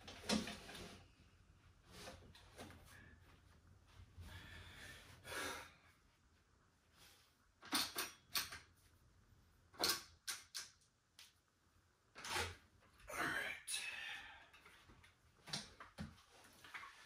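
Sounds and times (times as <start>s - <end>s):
dumbbells clicking and clunking: 7.5s - 8.9s, 9.7s - 11.5s.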